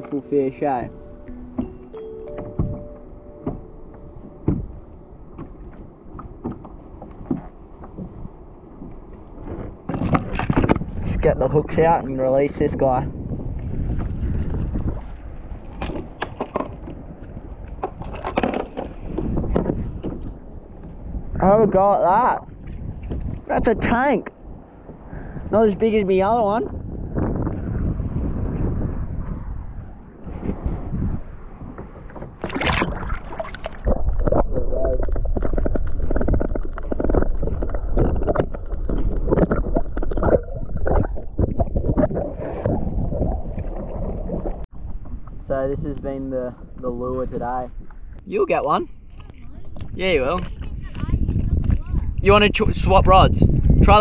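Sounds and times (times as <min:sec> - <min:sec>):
wind rumble on microphone: 0:00.0 - 0:54.0
underwater rushing and gurgling: 0:26.1 - 0:45.5
water splashing: 0:31.6 - 0:45.5.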